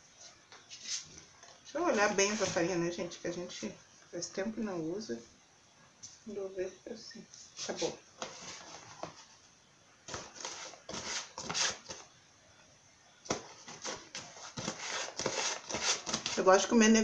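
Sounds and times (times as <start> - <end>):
rustling and scraping: 0.1 - 2.9, 7.4 - 12.1, 13.3 - 16.7.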